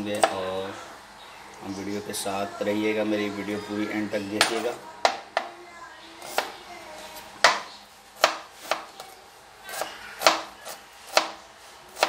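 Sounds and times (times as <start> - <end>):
knife chopping on cutting board: 7.4 - 8.9, 9.7 - 11.4.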